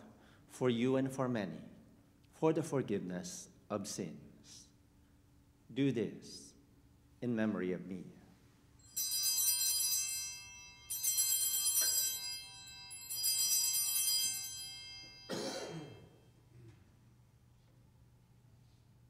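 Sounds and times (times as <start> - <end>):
bright high bell chimes: 8.8 - 16.2.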